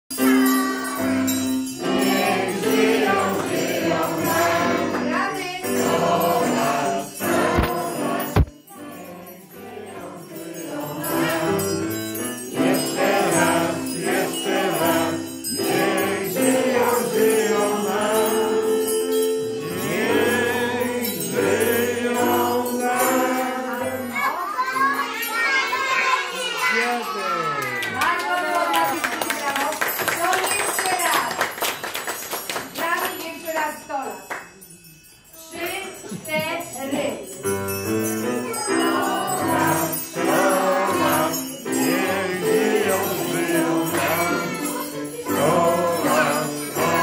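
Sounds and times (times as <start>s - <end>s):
children singing: 0.1s - 27.4s, 38.1s - 47.0s.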